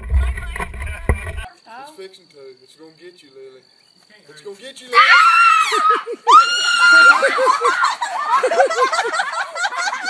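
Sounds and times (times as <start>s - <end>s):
girl screaming: 4.9s - 7.9s
rapid laughter: 5.9s - 10.0s.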